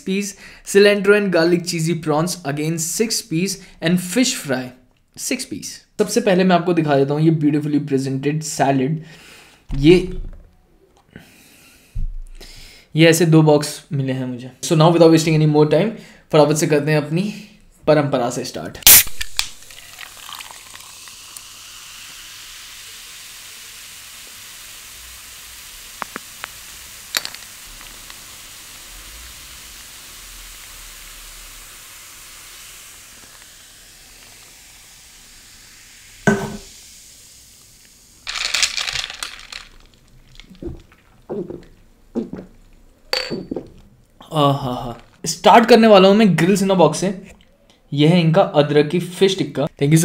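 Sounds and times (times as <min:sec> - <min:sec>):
cola fizzing in a glass: 0:18.9 - 0:40.8
object set down knock: 0:36.3 - 0:36.7.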